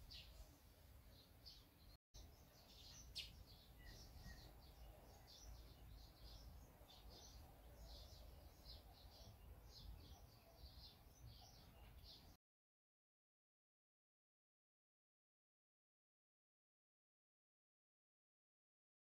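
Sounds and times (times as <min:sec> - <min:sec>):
swallows chirping: 0:00.0 - 0:12.4.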